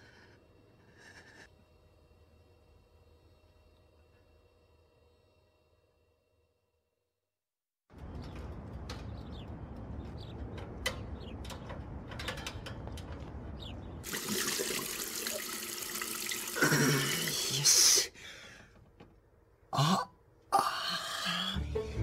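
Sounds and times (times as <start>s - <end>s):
running water splashing: 14.1s - 17.6s.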